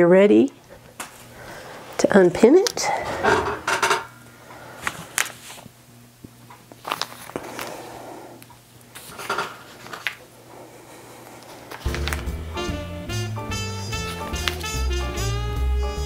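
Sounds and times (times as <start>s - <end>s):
paper rustling: 4.8s - 5.7s, 6.7s - 7.8s, 8.9s - 10.3s, 11.4s - 12.3s, 14.0s - 14.8s.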